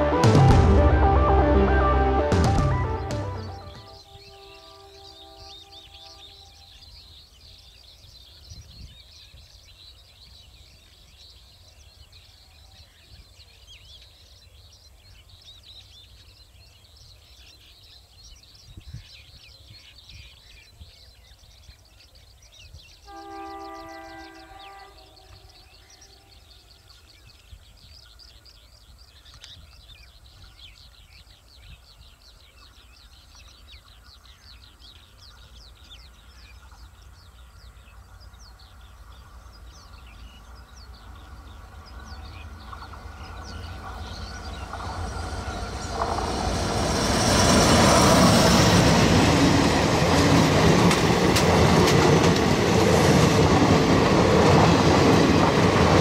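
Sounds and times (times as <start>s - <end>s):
diesel locomotive horn: 0.0s - 6.8s, 23.0s - 26.5s
birds chirping: 0.0s - 56.0s.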